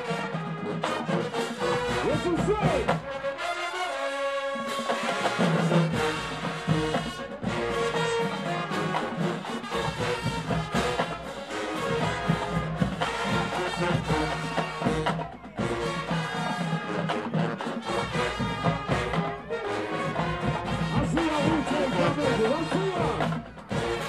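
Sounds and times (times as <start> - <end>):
marching band drums: 0.0 - 24.0
trumpets and trombones: 0.0 - 24.0.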